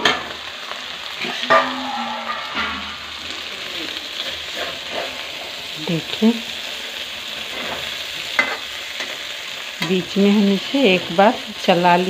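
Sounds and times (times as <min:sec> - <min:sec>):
okra sizzling in oil: 0:00.0 - 0:12.0
metal spatula scraping pan: 0:01.2 - 0:05.2.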